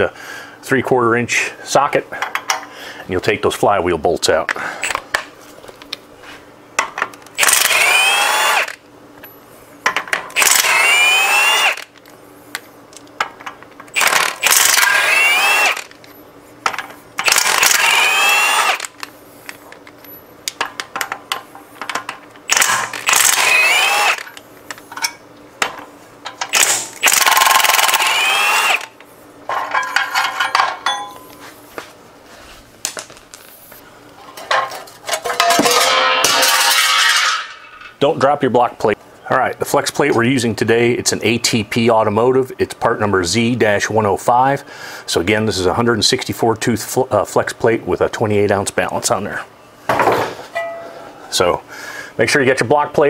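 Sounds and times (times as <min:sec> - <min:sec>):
cordless impact wrench whining: 0:07.4 - 0:08.8, 0:10.3 - 0:12.0, 0:13.9 - 0:16.1, 0:17.2 - 0:19.1, 0:22.5 - 0:24.4, 0:26.4 - 0:29.0.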